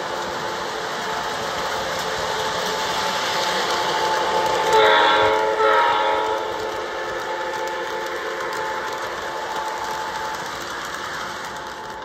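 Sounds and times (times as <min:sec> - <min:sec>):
model train wheels rolling on track: 0:00.0 - 0:12.0
model train horn: 0:04.2 - 0:10.2.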